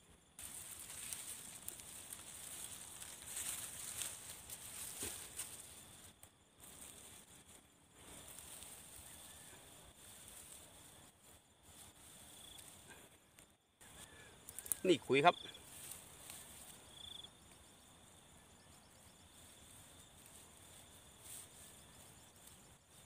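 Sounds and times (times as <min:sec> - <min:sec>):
insects trilling: 0:00.0 - 0:23.0
grass stalks rustling and crackling: 0:00.3 - 0:23.0.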